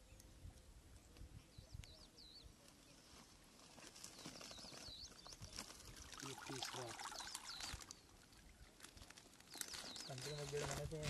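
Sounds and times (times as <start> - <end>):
bird singing whistled notes: 1.5 - 2.5, 4.1 - 6.0, 6.8 - 8.0
faint rustling and handling: 2.5 - 11.0.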